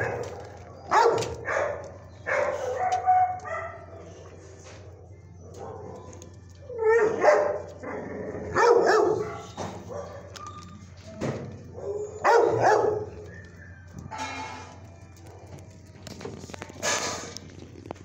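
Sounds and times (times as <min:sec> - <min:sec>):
dogs barking: 0:00.0 - 0:13.5.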